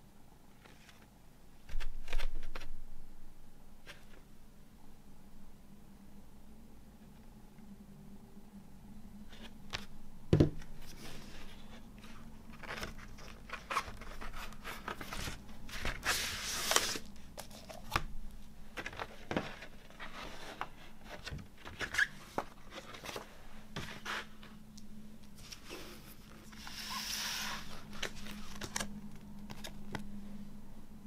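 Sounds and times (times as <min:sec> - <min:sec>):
thump on wooden table: 0:10.3 - 0:10.6
paper and card sliding and rustling: 0:10.8 - 0:18.0, 0:18.8 - 0:24.5, 0:25.4 - 0:28.9.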